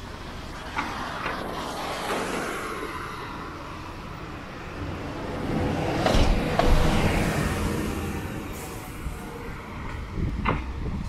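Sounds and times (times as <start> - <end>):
car passing: 0.0 - 10.7
vehicle approaching: 0.0 - 11.0.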